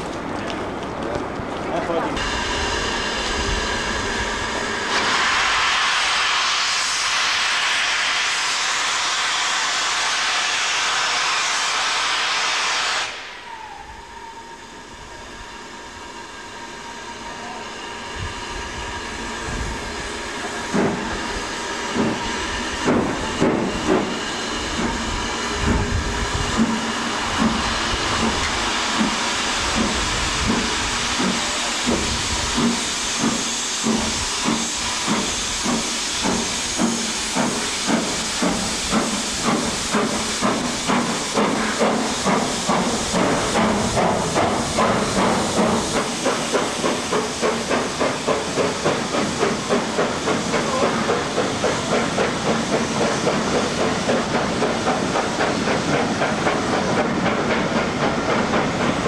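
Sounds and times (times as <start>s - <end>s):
steam locomotive exhaust beats: 1.8s - 59.0s
steam hissing: 2.2s - 59.0s.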